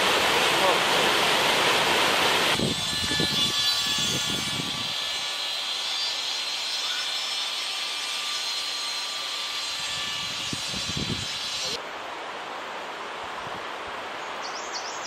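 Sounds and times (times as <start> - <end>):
wind buffeting microphone: 2.6 - 5.0, 10.2 - 11.5.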